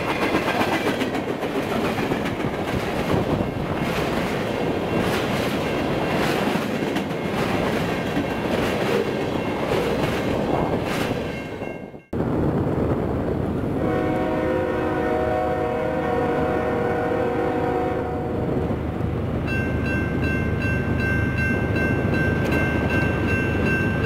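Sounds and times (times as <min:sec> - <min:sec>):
wheels clicking over rail joints: 0:00.0 - 0:11.6
distant train rumble: 0:00.0 - 0:24.0
train wheels rumbling on rail: 0:00.0 - 0:24.0.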